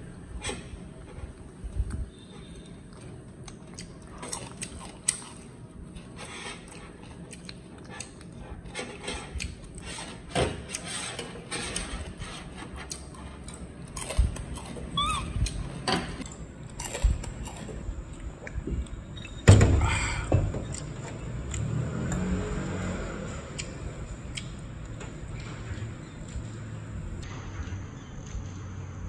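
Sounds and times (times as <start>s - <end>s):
monkey squeak: 14.9s - 15.6s.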